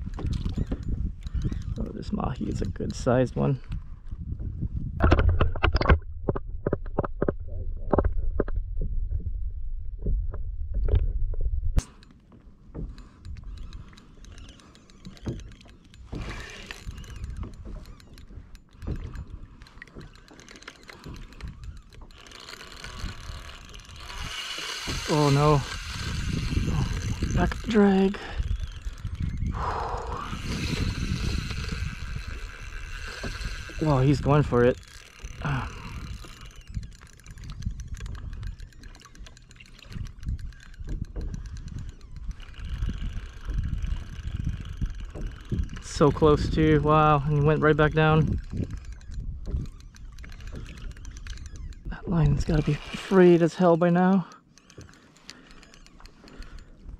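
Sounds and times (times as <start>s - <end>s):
fishing reel clicking and grinding: 0.0s - 3.9s, 11.8s - 56.9s
wind on microphone: 0.0s - 11.9s, 12.8s - 20.2s, 20.8s - 53.2s.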